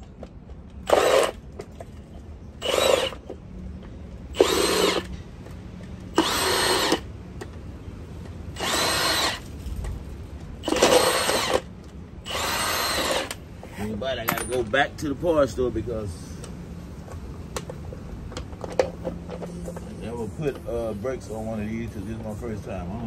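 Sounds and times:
impact wrench bursts: 0.8s - 1.4s, 2.6s - 3.3s, 4.3s - 5.1s, 6.1s - 7.1s, 8.5s - 9.5s, 10.6s - 13.4s.

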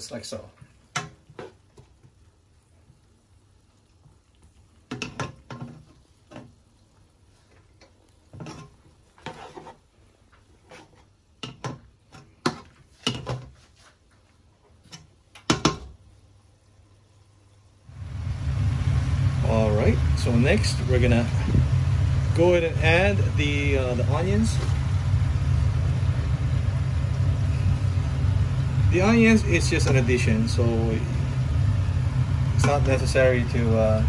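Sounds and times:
spatula scraping frying pan: 8.3s - 11.2s.

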